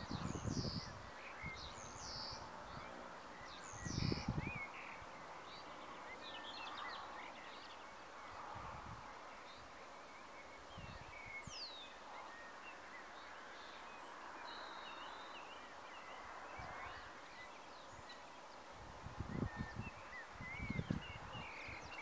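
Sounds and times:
low background hiss: 0:00.0 - 0:22.0
small birds chirping: 0:00.0 - 0:22.0.

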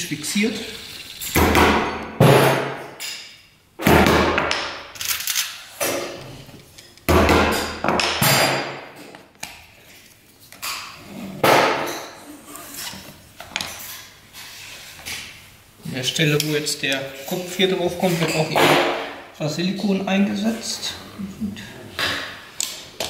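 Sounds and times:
hammer driving nails into wood: 0:01.4 - 0:02.8.

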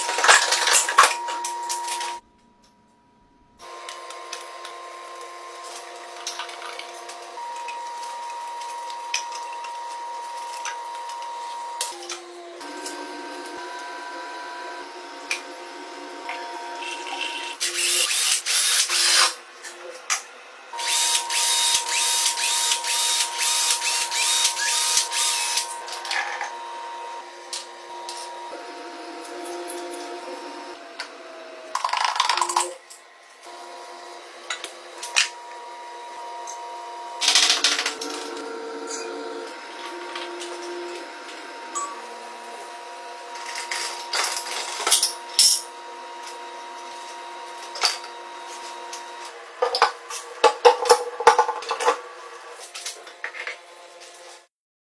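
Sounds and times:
power tool bursts: 0:17.0 - 0:19.4, 0:20.8 - 0:25.8.

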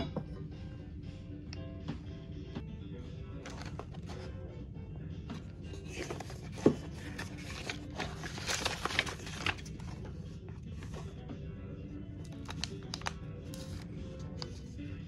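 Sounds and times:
quiet background music: 0:00.0 - 0:15.0
paper rustling and scraping: 0:05.8 - 0:10.2.

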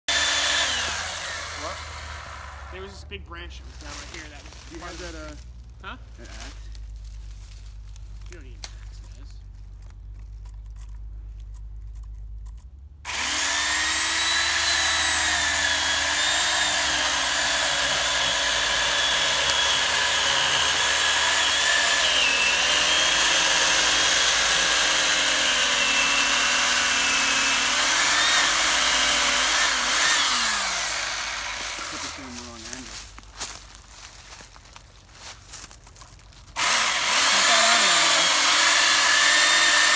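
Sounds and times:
electric chainsaw cutting wood: 0:00.0 - 0:03.0, 0:13.0 - 0:32.9, 0:36.6 - 0:39.9.

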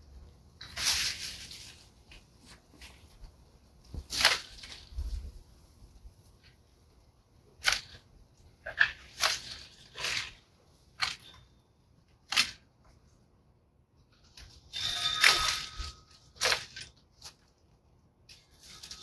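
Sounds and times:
dry branches rustling and scraping: 0:00.6 - 0:06.6, 0:07.6 - 0:11.5, 0:14.1 - 0:17.6, 0:18.3 - 0:19.0.

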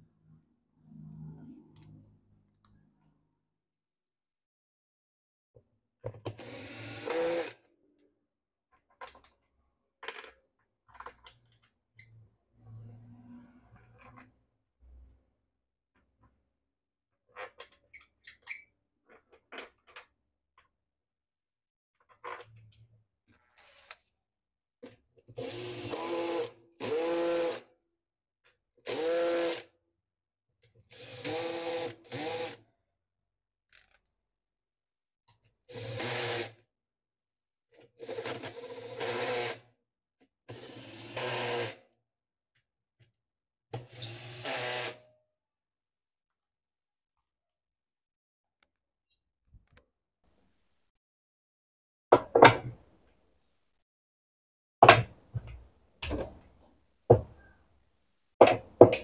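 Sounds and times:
cordless drill driving screw: 0:06.4 - 0:07.6, 0:25.4 - 0:27.6, 0:28.9 - 0:29.6, 0:30.9 - 0:32.6, 0:35.7 - 0:36.5, 0:38.1 - 0:39.6, 0:40.6 - 0:41.8, 0:43.9 - 0:45.0.

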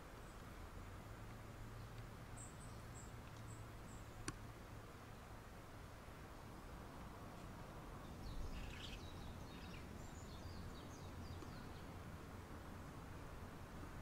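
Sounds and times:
small birds chirping: 0:00.0 - 0:00.6, 0:01.4 - 0:05.5, 0:07.0 - 0:12.2.

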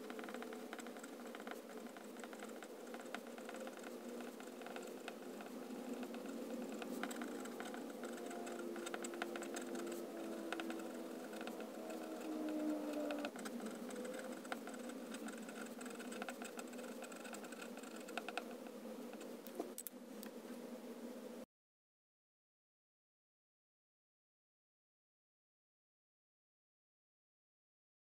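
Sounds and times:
pen nib scratching on paper: 0:00.0 - 0:19.8
faint steady hum: 0:00.0 - 0:21.5.

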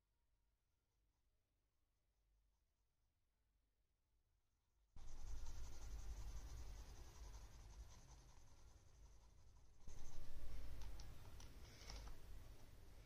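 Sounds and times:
pencil scratching on paper: 0:05.0 - 0:11.4.

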